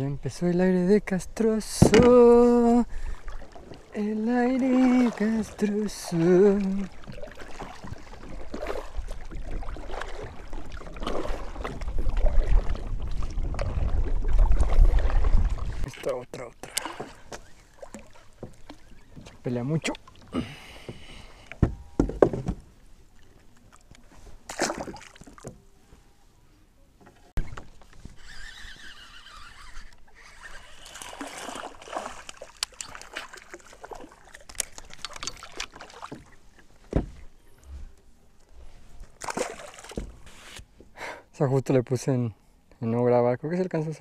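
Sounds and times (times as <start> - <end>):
water splashing around a kayak: 1.3 - 26.1, 27.4 - 41.0
knocks against a boat: 1.7 - 2.2, 21.6 - 22.7, 36.9 - 37.3, 39.9 - 40.2.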